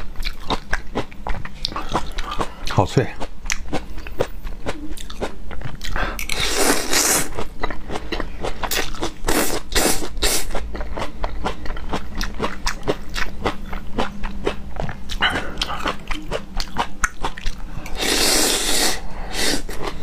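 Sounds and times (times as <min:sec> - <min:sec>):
crunchy chewing: 0:00.0 - 0:18.8
slurping: 0:17.8 - 0:20.0.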